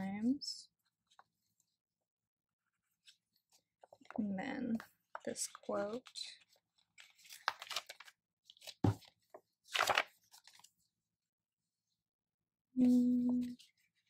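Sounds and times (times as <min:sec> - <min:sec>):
paper crinkling and tearing: 0:05.5 - 0:08.9, 0:09.6 - 0:10.7.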